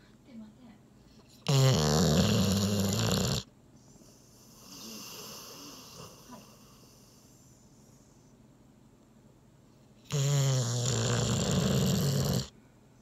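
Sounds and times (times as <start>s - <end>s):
dog snoring: 1.1s - 8.3s, 10.0s - 12.5s.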